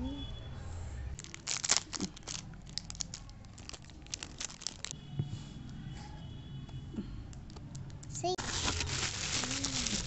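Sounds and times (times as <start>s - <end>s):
plastic packet crinkling: 1.2s - 4.9s, 8.4s - 10.0s.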